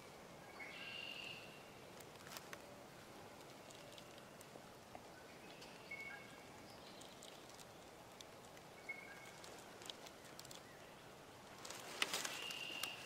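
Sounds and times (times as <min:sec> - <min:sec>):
faint bird chirps: 0:00.4 - 0:01.8, 0:05.1 - 0:07.8, 0:08.7 - 0:11.2, 0:12.1 - 0:13.0
tiny ticks: 0:03.4 - 0:05.8, 0:06.9 - 0:10.7.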